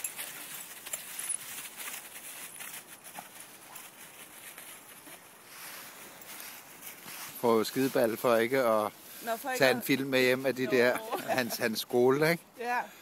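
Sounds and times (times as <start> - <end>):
dry leaves rustling and crunching: 0.0 - 7.9.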